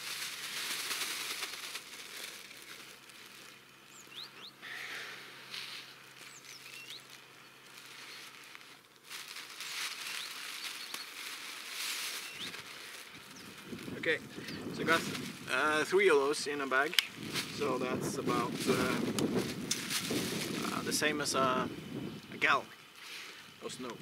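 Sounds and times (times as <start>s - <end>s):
plastic bag crinkling: 0.0s - 21.5s
snow scooped into plastic bag: 0.0s - 21.6s
bird chirps: 3.8s - 4.7s, 6.2s - 8.3s, 12.2s - 12.6s.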